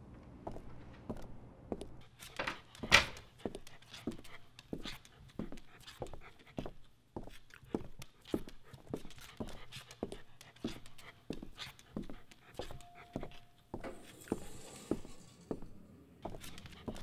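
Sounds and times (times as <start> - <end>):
footsteps on hard floor: 0.4 - 17.0
dog panting: 2.6 - 15.1, 16.3 - 17.0.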